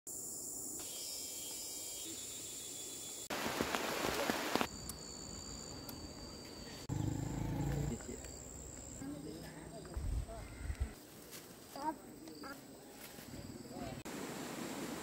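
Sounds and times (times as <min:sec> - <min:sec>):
rain-like hiss with clicks: 0:03.3 - 0:05.0.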